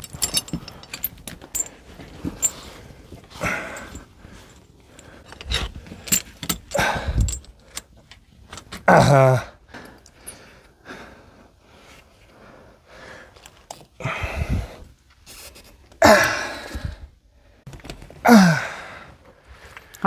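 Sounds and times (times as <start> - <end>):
person sighing heavily: 6.7 - 7.4, 8.9 - 9.9, 14.0 - 14.8, 16.0 - 17.1, 18.2 - 19.2.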